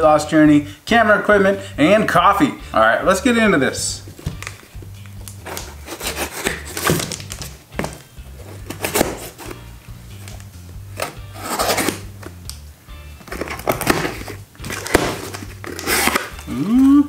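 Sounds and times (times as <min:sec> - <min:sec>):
background music with bass line: 0:00.0 - 0:17.0
knife cutting packing tape: 0:04.4 - 0:09.6, 0:10.2 - 0:12.6, 0:13.2 - 0:17.0.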